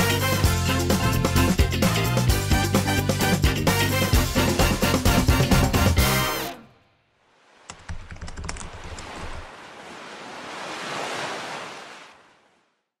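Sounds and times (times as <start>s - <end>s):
background music: 0.0s - 6.8s
surf-like rush of noise: 9.5s - 12.2s.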